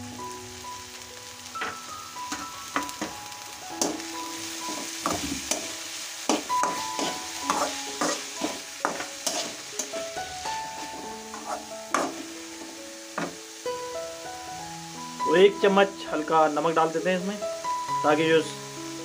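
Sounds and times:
vegetables sizzling in oil: 0.0s - 19.0s
metal spatula scraping a wok: 4.6s - 13.4s.

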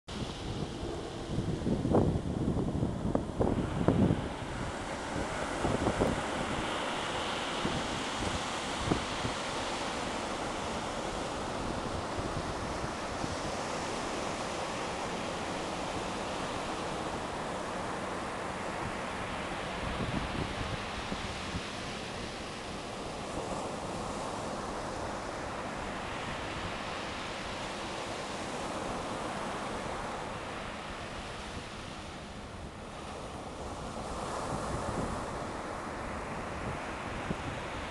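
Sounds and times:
wind buffeting microphone: 0.1s - 9.4s, 18.5s - 23.9s, 33.4s - 37.9s
ocean surf on sandy beach: 0.1s - 37.9s.

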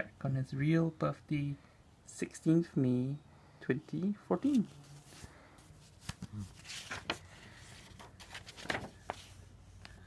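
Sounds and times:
paper page rustling: 4.4s - 10.0s.

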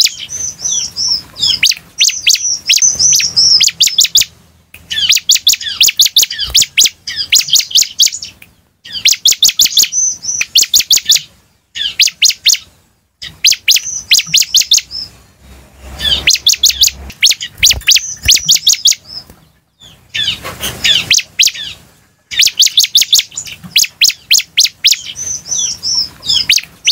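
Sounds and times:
small bird singing sharp high notes: 0.0s - 19.2s.

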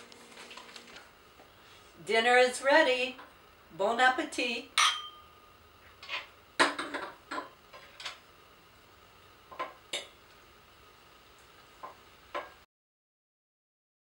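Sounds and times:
forks clinking on plates: 4.8s - 5.2s.

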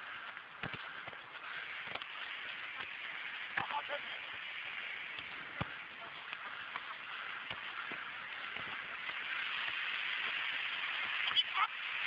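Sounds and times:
outdoor hiss: 0.0s - 12.0s
football being kicked: 0.6s - 1.2s, 1.8s - 2.1s, 5.2s - 5.8s.

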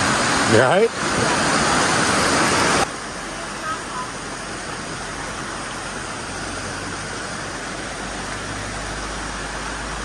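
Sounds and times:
stream rushing over stones: 0.0s - 10.0s.

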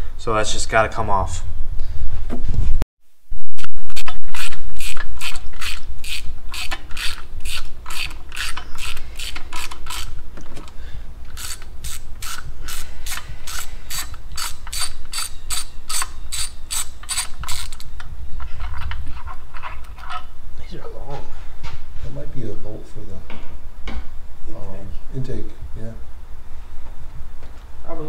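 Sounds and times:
hand ratchet clicking: 4.0s - 10.1s, 11.3s - 17.9s.

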